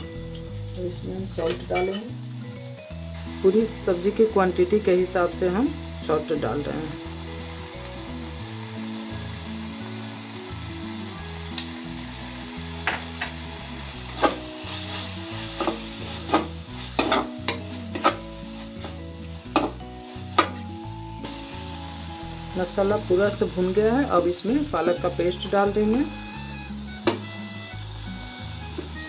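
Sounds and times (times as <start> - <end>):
food sizzling in frying: 0.0 - 29.0
spatula scraping metal pan: 14.1 - 19.8.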